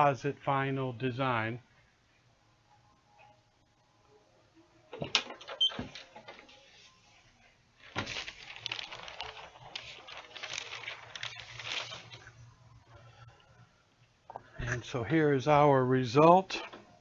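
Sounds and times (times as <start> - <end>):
parchment paper rustling: 7.8 - 12.5.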